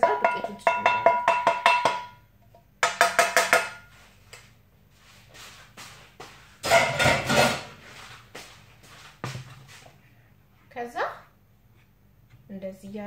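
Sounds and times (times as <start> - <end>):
kitchenware clattering: 0.0 - 2.2, 2.8 - 3.9, 6.6 - 7.8
wooden spoon knocking on metal pot: 0.0 - 2.2, 2.8 - 3.9.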